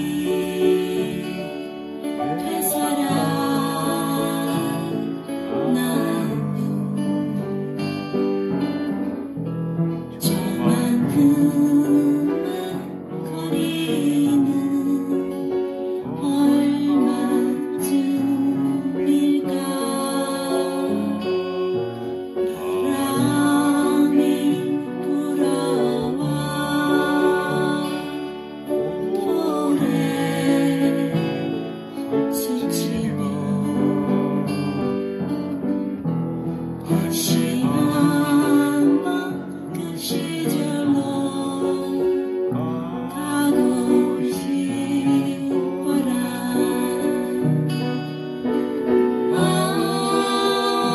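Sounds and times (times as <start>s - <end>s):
recorded guitar and singing: 0.0s - 50.9s
upright piano playing: 0.0s - 50.9s.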